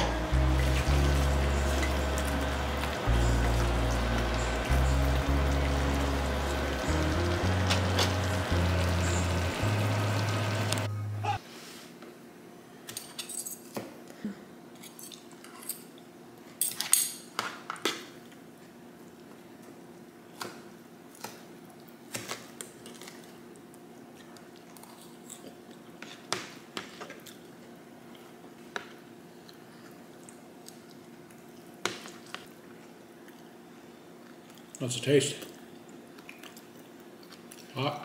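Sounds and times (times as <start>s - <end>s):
faint steady hum: 0.0s - 11.4s.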